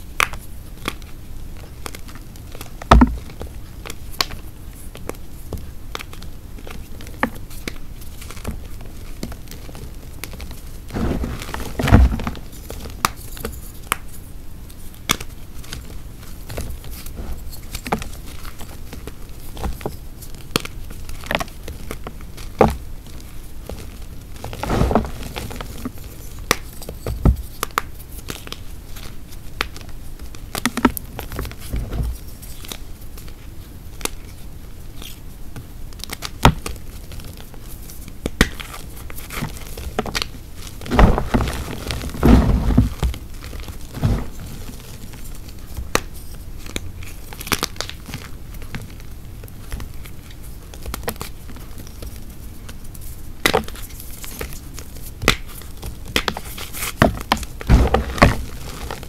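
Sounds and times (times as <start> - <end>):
chalk crumbling and crunching: 3.8 - 29.9, 37.0 - 48.3, 49.6 - 59.0.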